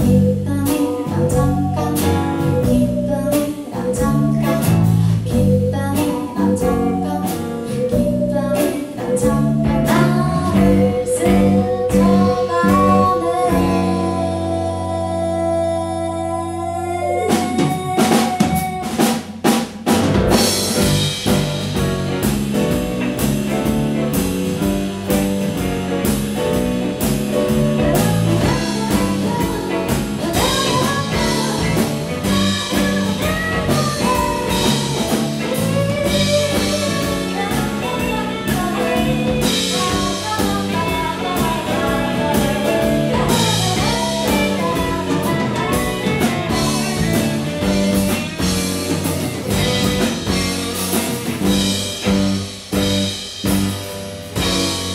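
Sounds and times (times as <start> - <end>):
drum kit groove: 0.0 - 14.9, 17.1 - 54.9
accented band hits: 17.3 - 54.9.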